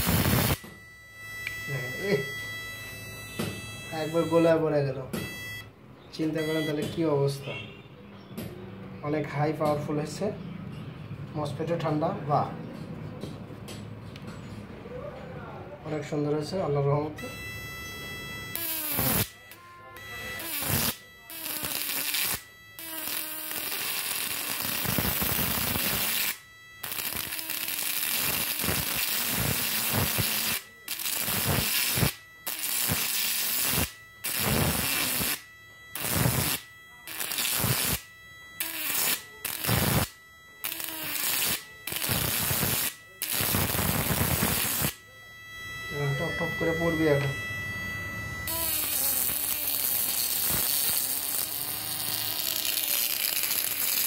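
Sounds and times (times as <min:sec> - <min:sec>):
electric arc crackling buzz: 0:00.0 - 0:00.8, 0:17.5 - 0:54.0.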